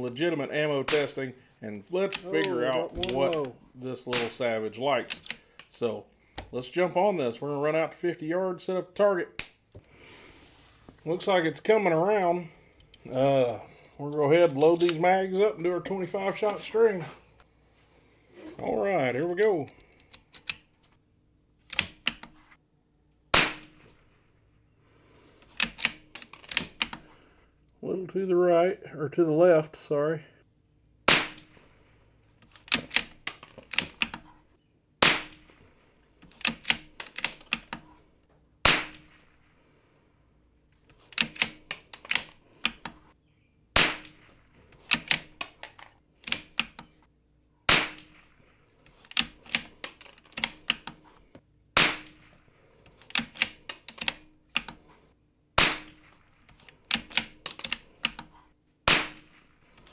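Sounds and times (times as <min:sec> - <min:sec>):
rifle shots: 0:23.3 - 0:23.9, 0:31.1 - 0:31.7, 0:35.0 - 0:35.6, 0:38.6 - 0:39.4, 0:43.8 - 0:44.4, 0:47.7 - 0:48.4, 0:51.8 - 0:52.3, 0:55.6 - 0:56.2, 0:58.9 - 0:59.5
rifle bolt clicking: 0:36.3 - 0:37.8, 0:41.1 - 0:42.9, 0:49.0 - 0:51.0, 0:53.0 - 0:54.8, 0:56.8 - 0:58.2.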